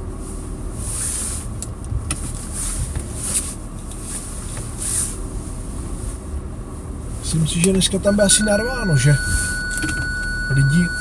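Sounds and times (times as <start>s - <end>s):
car cabin low rumble: 0.0s - 11.0s.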